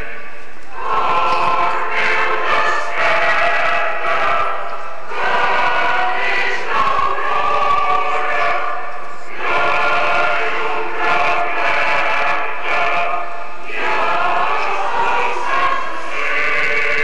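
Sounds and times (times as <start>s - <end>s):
choir singing held chords: 0.0s - 17.0s.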